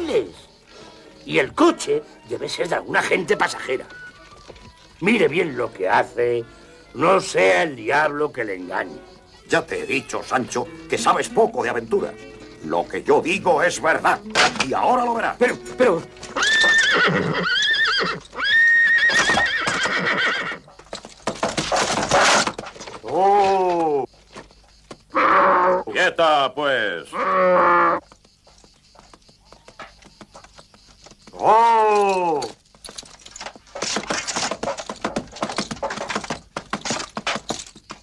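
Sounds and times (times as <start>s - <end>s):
horse hoofbeats galloping: 3.0s - 5.7s, 10.0s - 25.0s, 28.0s - 38.0s
cartoon horse whinnying: 16.2s - 20.6s, 25.1s - 25.9s, 27.1s - 28.0s.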